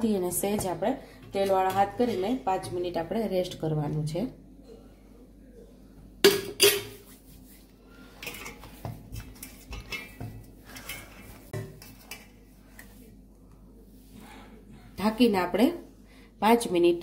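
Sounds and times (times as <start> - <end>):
dough kneaded in steel plate: 0.0 - 4.0.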